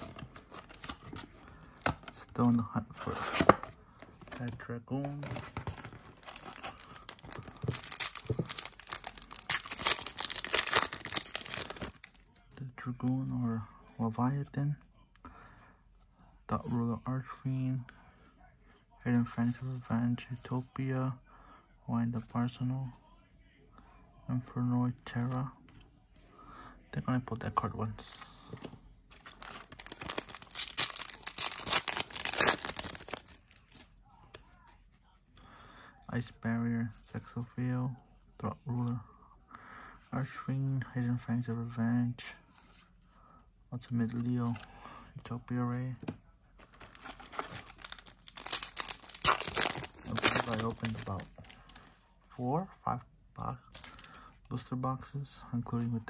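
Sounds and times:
foil wrapper tearing and crinkling: 0:06.2 - 0:12.2, 0:29.2 - 0:33.4, 0:46.7 - 0:51.6, 0:53.8 - 0:54.1.

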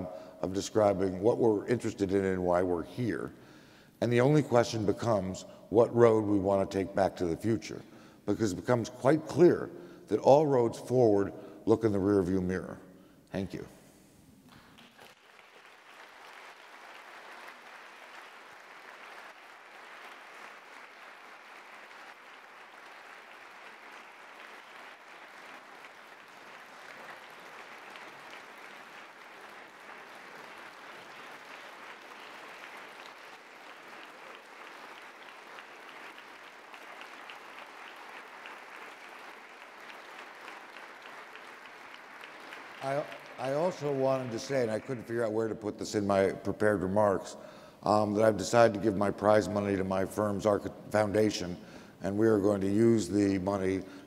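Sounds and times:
audience applauding: 0:14.6 - 0:45.6.

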